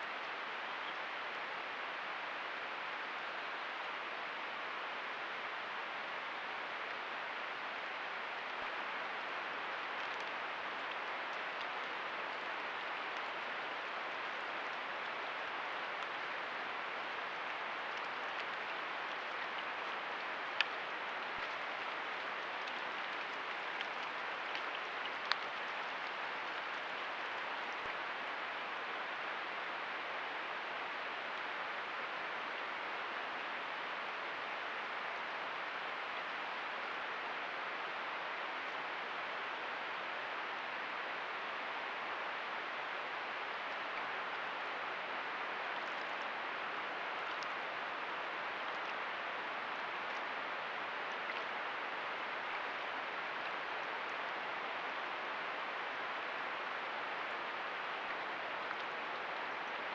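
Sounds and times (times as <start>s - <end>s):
faint sharp ticks: 23.8s - 25.9s.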